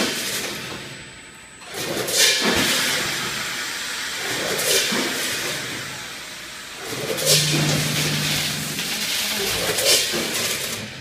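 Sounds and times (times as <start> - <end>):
packing machine mechanical clatter: 6.8 - 11.0.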